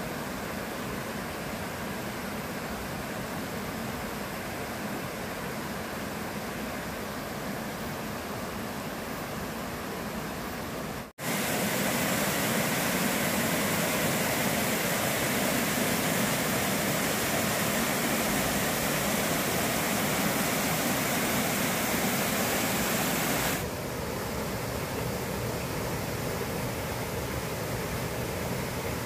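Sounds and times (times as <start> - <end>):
stream rushing over rocks: 10.1 - 29.0.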